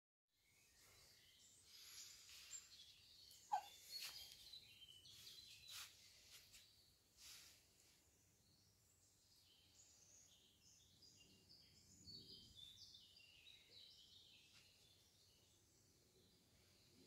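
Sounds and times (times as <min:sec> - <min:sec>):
faint high chirps: 0:00.4 - 0:07.1.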